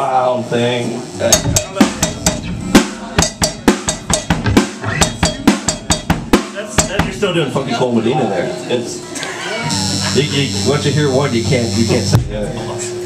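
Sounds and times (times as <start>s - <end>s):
drum kit played with sticks: 1.2s - 7.4s.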